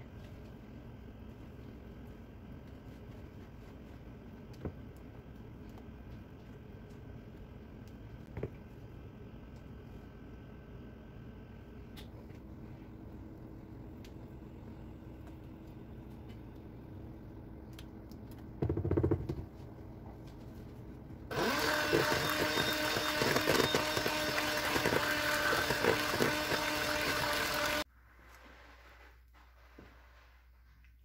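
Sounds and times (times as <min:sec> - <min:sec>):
electric hand mixer beating: 0:21.3 - 0:27.9.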